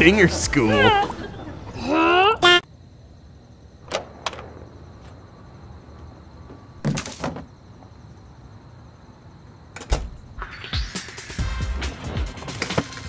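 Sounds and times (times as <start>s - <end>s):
door banging shut: 3.8s - 4.6s, 9.8s - 10.3s
metal door opening: 3.8s - 4.6s, 9.8s - 10.4s.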